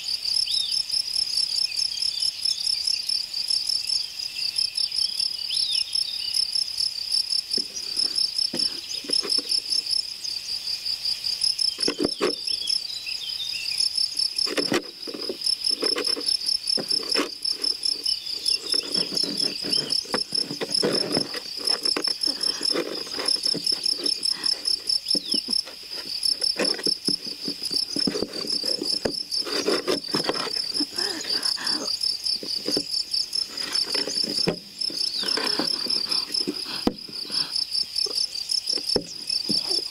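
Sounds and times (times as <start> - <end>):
crickets chirping: 0.0 - 39.9
faint knocks and shuffling: 7.6 - 9.8, 11.8 - 12.5, 14.2 - 37.5, 38.1 - 39.9.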